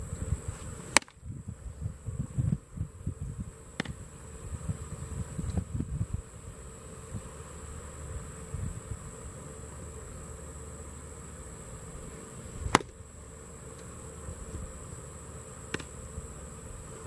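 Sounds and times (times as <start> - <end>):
insects buzzing: 0.0 - 17.0
baseball smacking into leather mitt: 0.9 - 1.2, 3.8 - 4.0, 12.6 - 13.0, 15.7 - 16.0.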